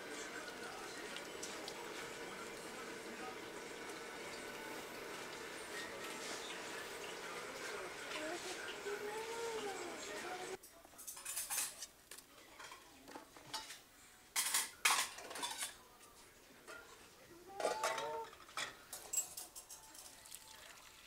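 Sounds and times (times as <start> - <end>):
pots and pans clanking: 14.4 - 15.8, 17.5 - 20.2.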